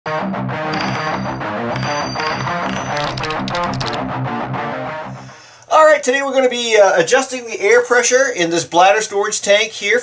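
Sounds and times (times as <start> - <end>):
intro music with guitar: 0.1 - 5.4.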